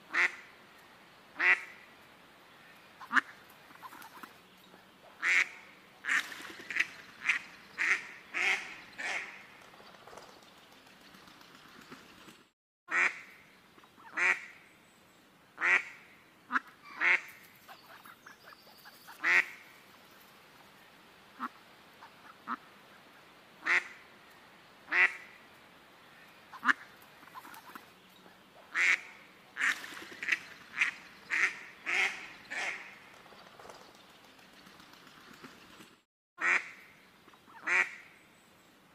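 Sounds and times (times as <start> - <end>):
ducks quacking: 3.0 - 4.4, 15.6 - 19.6, 26.5 - 27.9, 28.6 - 33.0.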